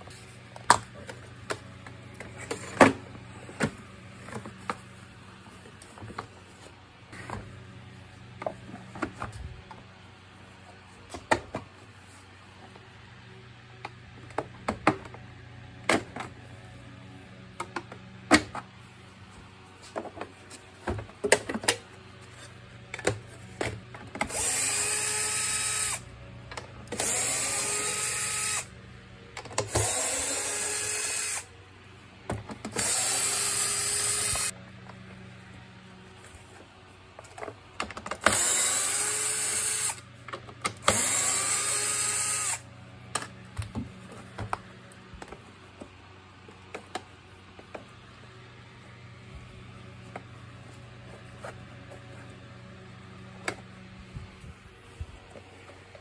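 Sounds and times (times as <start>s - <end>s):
cordless drill spinning: 24.2s - 26.1s, 26.9s - 28.7s, 29.7s - 31.5s, 32.7s - 34.6s, 38.2s - 40.0s, 40.8s - 42.7s.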